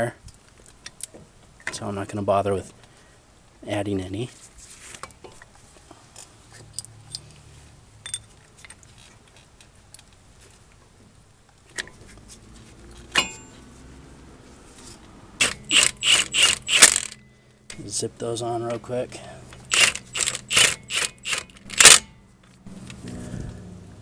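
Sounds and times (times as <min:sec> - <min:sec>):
cordless power ratchet bursts: 0:15.4 - 0:17.2, 0:19.6 - 0:22.1.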